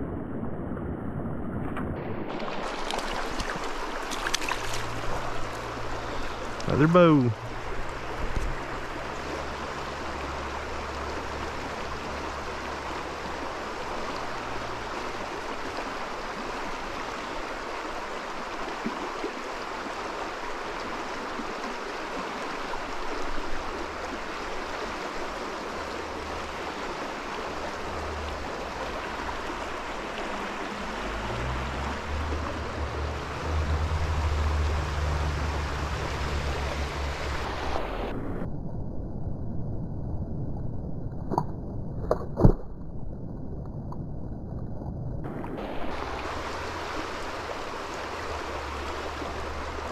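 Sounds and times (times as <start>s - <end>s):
stream water rushing: 2.0s - 38.5s, 45.2s - 49.9s
low rumble: 27.5s - 49.9s.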